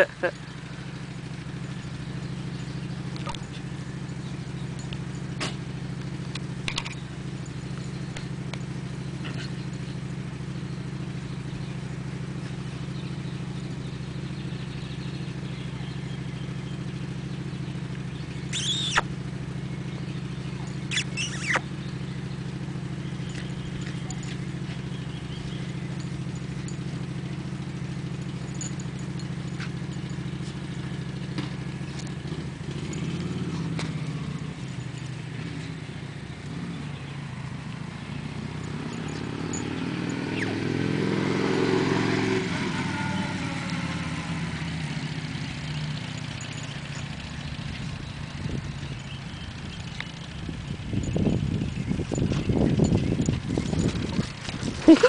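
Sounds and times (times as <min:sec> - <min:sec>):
short high squeaks: 0:18.4 - 0:19.2, 0:20.7 - 0:21.8, 0:39.0 - 0:40.7.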